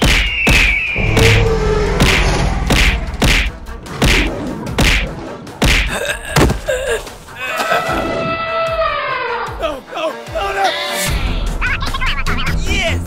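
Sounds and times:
heavy impact thuds and whacks: 0.6 - 6.6
short falling tone: 1.0 - 4.6.

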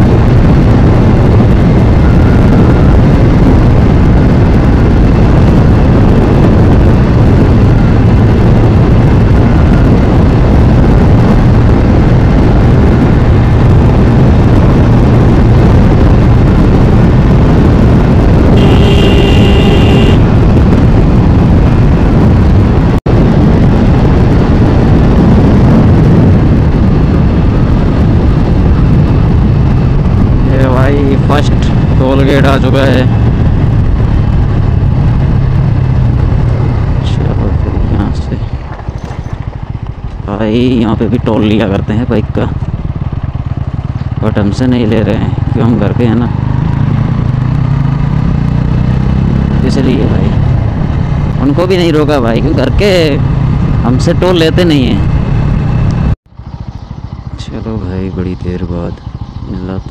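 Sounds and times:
motorcycle engine drone: 0.0 - 59.9
wind rush: 0.0 - 59.9
short high tone: 18.6 - 20.2.

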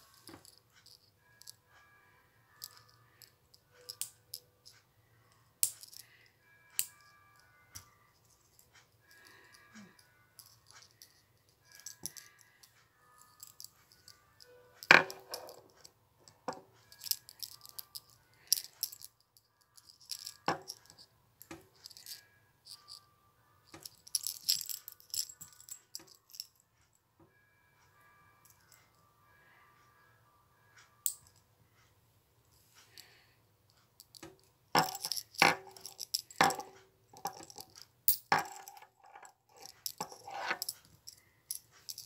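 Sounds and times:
metal keychain jangling and clicking: 2.6 - 4.5, 5.6 - 6.1, 8.5 - 12.6, 13.2 - 14.2, 14.8 - 15.8, 16.9 - 22.2, 23.7 - 26.6, 34.0 - 42.0.

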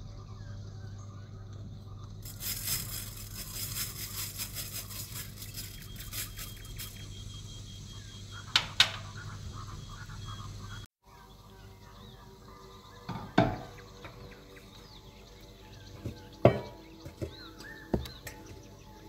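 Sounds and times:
seeds pattering into pan: 2.2 - 7.2.

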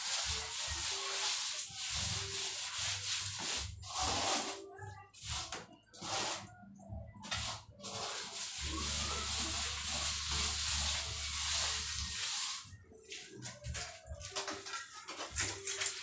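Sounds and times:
sponge rubbing on wet plaster: 0.0 - 6.5, 7.2 - 16.0.

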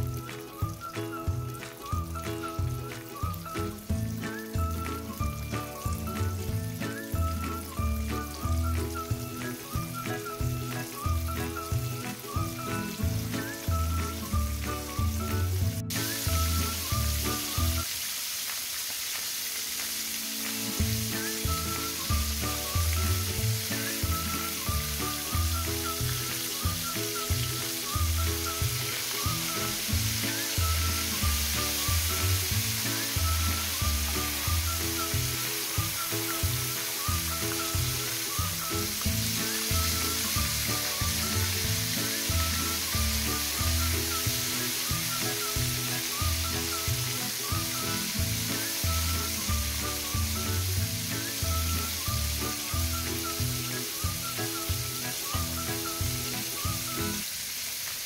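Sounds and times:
background music with low beat: 0.0 - 17.8
fish frying in hot oil: 0.0 - 58.0.

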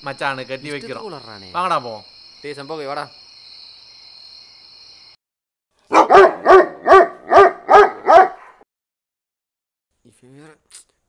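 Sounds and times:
high cricket trill: 0.0 - 5.2
dog barking loudly: 5.9 - 8.6.

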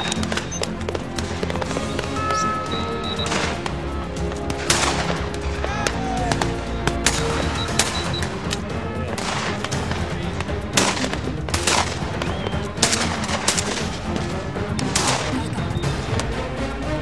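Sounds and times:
shotgun shots: 0.0 - 15.6
background music: 0.0 - 17.0.

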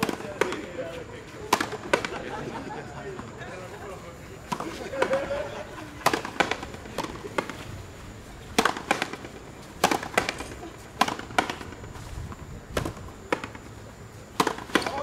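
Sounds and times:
ball cracking off rackets: 1.5 - 2.3, 4.5 - 5.3, 6.0 - 7.7, 8.5 - 11.9, 12.7 - 13.7, 14.3 - 15.0.

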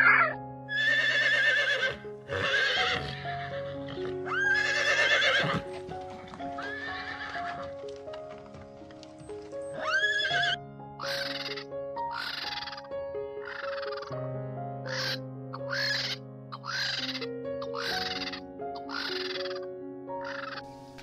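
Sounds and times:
horse whinnying: 0.0 - 5.7, 6.5 - 7.7, 9.8 - 11.6, 14.9 - 19.5
background music with held notes: 0.0 - 21.0.

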